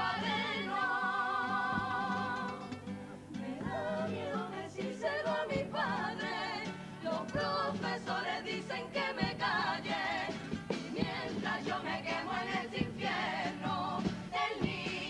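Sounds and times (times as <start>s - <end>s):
chorus singing in harmony: 0.0s - 15.0s
guitar accompaniment: 0.0s - 15.0s
drum hits: 9.0s - 15.0s.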